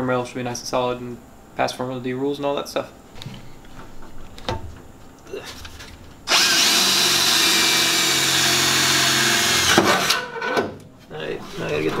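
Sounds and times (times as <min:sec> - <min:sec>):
cordless drill boring into steel: 0:06.3 - 0:10.2.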